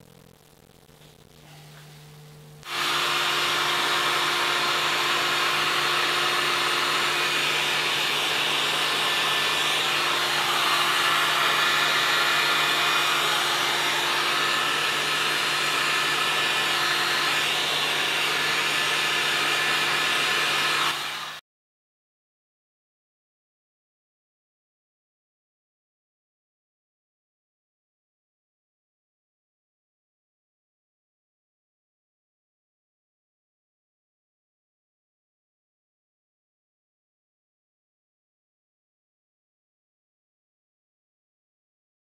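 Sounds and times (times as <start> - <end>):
hot air gun blowing: 2.6 - 21.4.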